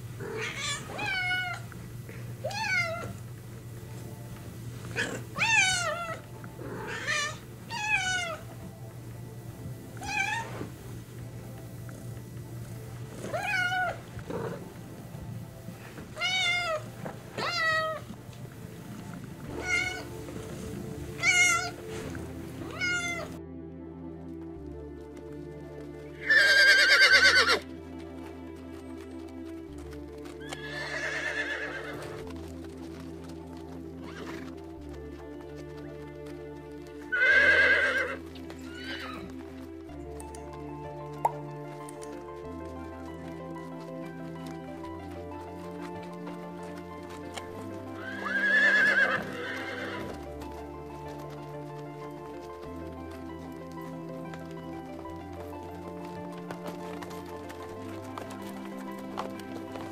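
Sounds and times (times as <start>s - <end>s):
horse neighing: 0.0s - 1.7s, 4.8s - 8.6s, 10.0s - 10.8s, 13.0s - 14.9s, 15.7s - 18.3s, 19.4s - 23.4s, 26.2s - 27.7s, 30.4s - 32.3s, 37.1s - 39.4s, 47.5s - 50.4s
cat meowing: 0.2s - 1.6s, 2.4s - 3.2s, 5.4s - 6.2s, 6.8s - 8.4s, 10.0s - 10.5s, 13.3s - 14.0s, 16.2s - 16.8s, 17.4s - 18.0s, 19.6s - 20.1s, 21.2s - 21.8s, 22.7s - 23.3s.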